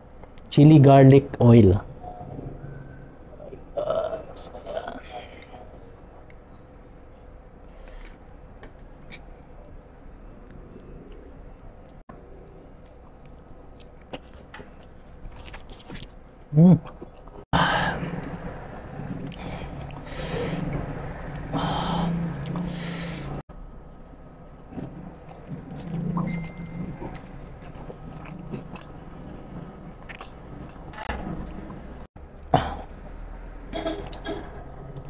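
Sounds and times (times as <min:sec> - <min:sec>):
chewing and wet mouth sounds: 0:10.7 - 0:17.4, 0:18.0 - 0:22.8, 0:24.0 - 0:35.0
breathy puffs: 0:19.1 - 0:23.4.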